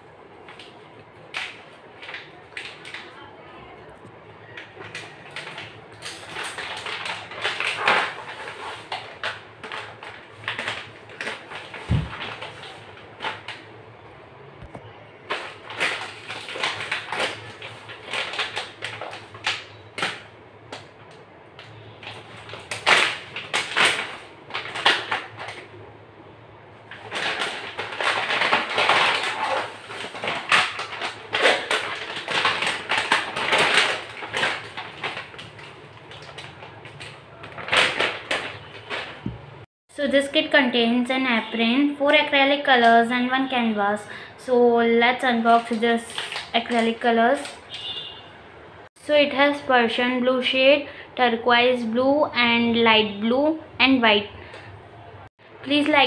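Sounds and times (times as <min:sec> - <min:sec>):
plastic pouch crinkling: 0:04.6 - 0:13.6, 0:15.3 - 0:20.9, 0:21.6 - 0:25.7, 0:26.9 - 0:39.7
scissors cutting plastic: 0:04.6 - 0:13.6, 0:15.3 - 0:25.7, 0:26.9 - 0:39.3.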